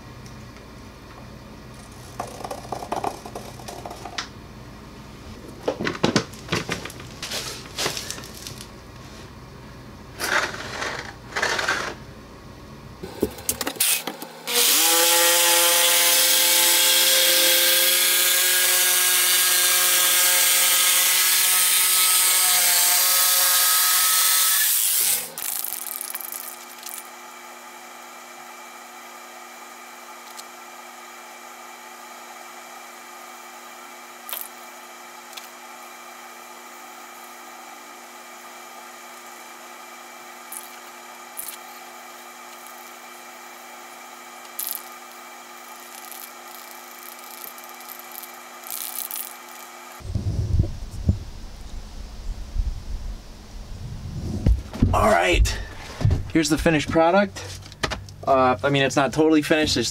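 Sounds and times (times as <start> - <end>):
jigsaw cutting board: 1.8 - 4.3, 10.2 - 12.0, 13.8 - 27.2, 44.2 - 50.0.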